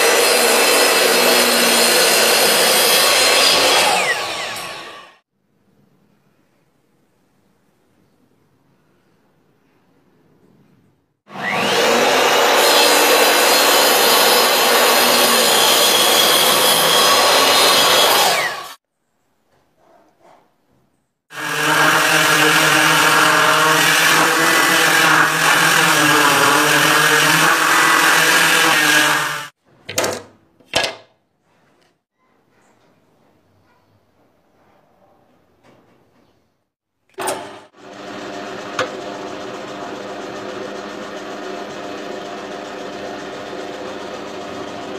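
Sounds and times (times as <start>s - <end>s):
power saw cutting timber: 0.0s - 5.2s, 11.3s - 18.8s, 21.3s - 29.6s, 37.2s - 44.9s.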